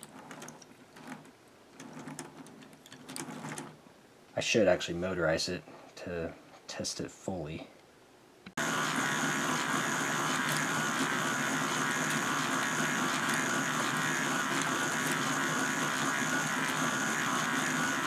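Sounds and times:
electric motor whirring: 8.6s - 18.0s.

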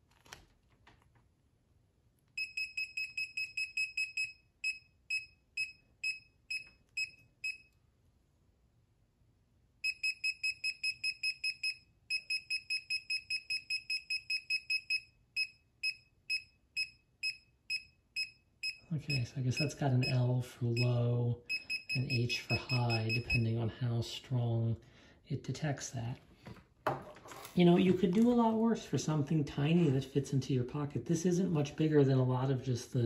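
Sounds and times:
multimeter short high beeps: 9.8s - 20.2s, 21.5s - 23.5s.

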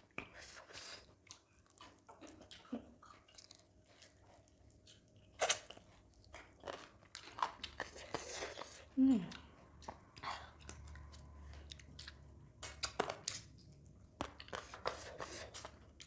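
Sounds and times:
people chewing and biting: 0.0s - 16.0s
wet mouth sounds: 5.3s - 5.8s, 7.4s - 15.9s.

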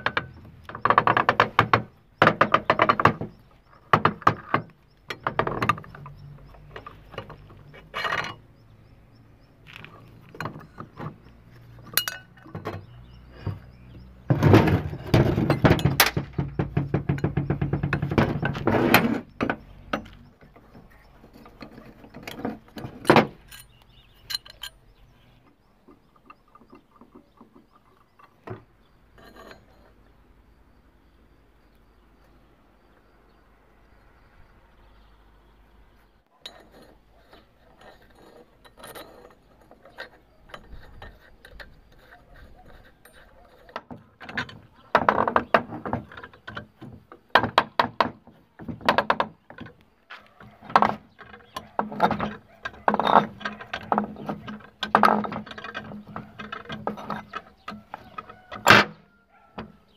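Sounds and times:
metal tools clinking on metal: 3.8s - 8.7s, 9.7s - 25.1s, 25.9s - 30.1s, 36.4s - 47.2s, 49.5s - 59.9s.

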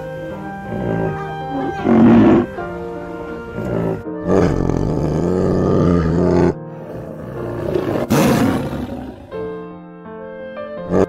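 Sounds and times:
big cat calling: 0.0s - 9.5s
music: 0.0s - 11.0s.

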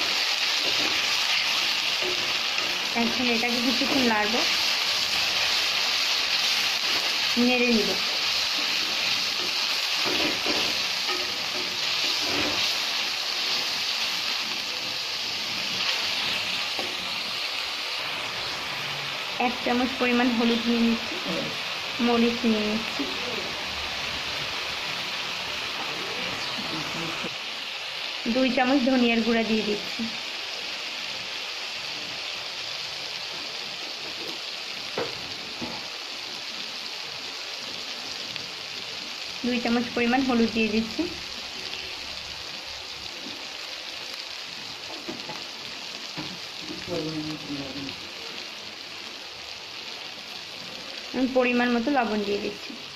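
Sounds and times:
paste sizzling in hot oil: 0.0s - 52.9s
wooden spatula scraping pan: 8.6s - 12.9s.

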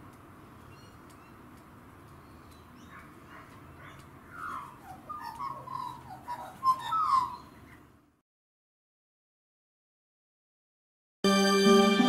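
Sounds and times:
magpie warbling: 4.3s - 7.8s.

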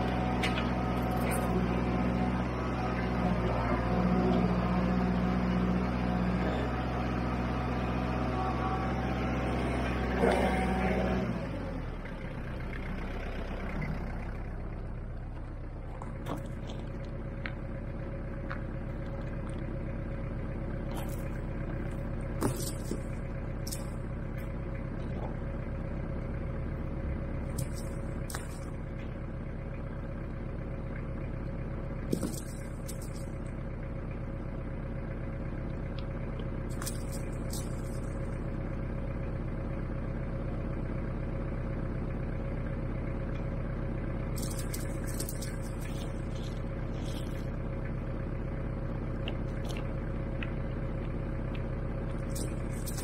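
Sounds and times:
asphalt chunks clicking and crunching: 0.0s - 1.8s, 15.2s - 26.2s, 27.4s - 29.8s, 32.0s - 34.3s, 35.5s - 38.6s, 44.2s - 53.0s
tractor engine running: 0.0s - 53.0s.

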